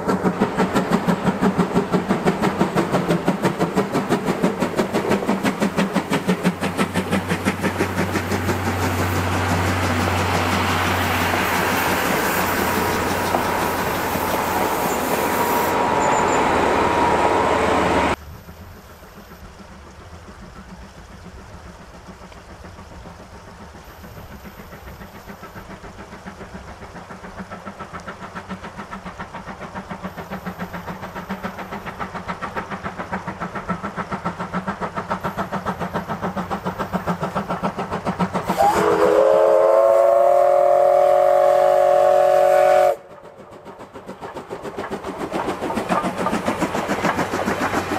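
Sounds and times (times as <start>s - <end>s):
diesel locomotive passing: 0.0s - 47.9s
steam locomotive exhaust beats: 0.0s - 47.9s
loud steam whistle: 38.4s - 43.1s.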